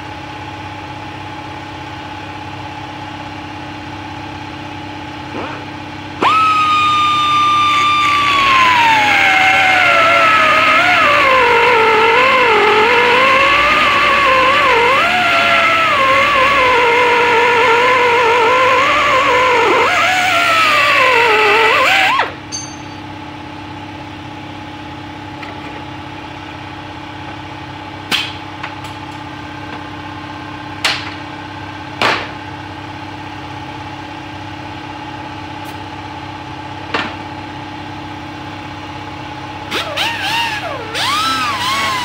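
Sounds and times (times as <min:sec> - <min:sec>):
steady machine hum: 0:00.0 - 0:42.0
air tool whirring: 0:06.2 - 0:22.4, 0:39.7 - 0:42.0
angle grinder grinding steel: 0:06.2 - 0:22.8, 0:39.7 - 0:42.0.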